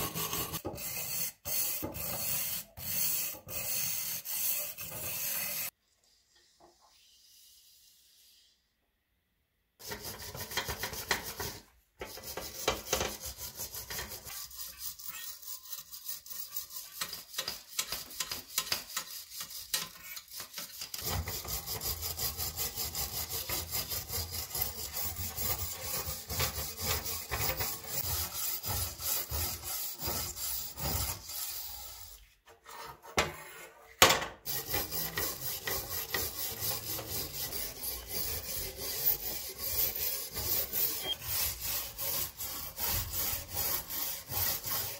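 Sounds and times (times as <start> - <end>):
wire brush scraping metal: 12.1 - 33.1.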